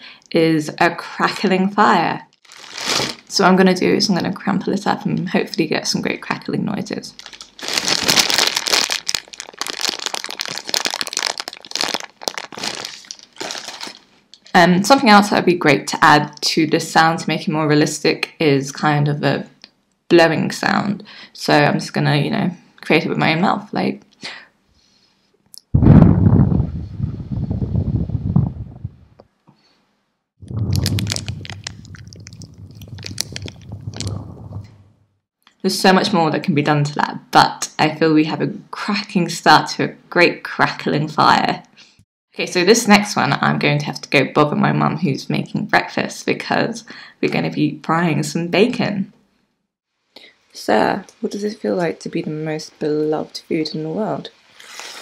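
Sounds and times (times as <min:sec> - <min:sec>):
plastic crumpling and crackling: 0:02.3 - 0:03.3, 0:07.1 - 0:14.6, 0:30.5 - 0:34.8.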